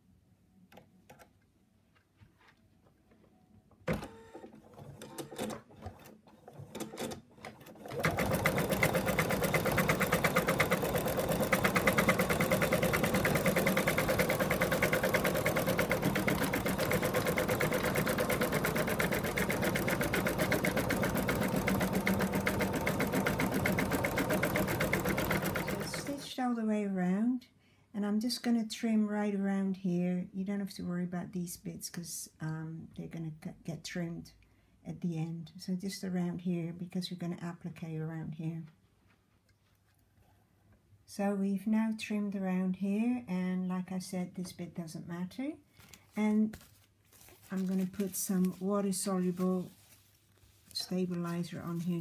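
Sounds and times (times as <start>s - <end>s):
embroidery machine stitching: 3.9s - 26.3s.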